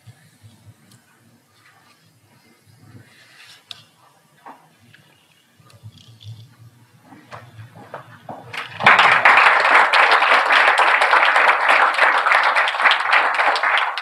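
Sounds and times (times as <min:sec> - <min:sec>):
audience applause: 0:07.7 - 0:14.0.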